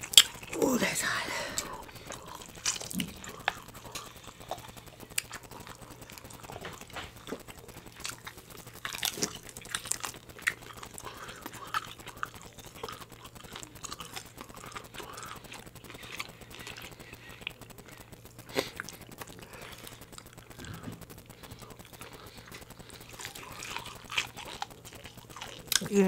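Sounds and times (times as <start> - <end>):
chewing seafood with crunches: 0.0 - 26.0.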